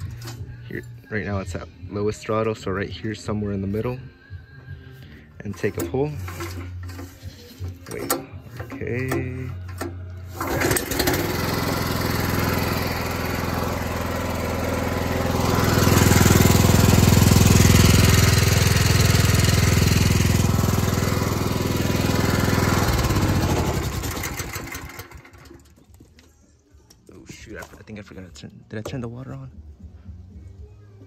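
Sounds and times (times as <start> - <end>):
recoil starter pull: 5.4 - 25.8
small gas engine running: 5.5 - 25.8.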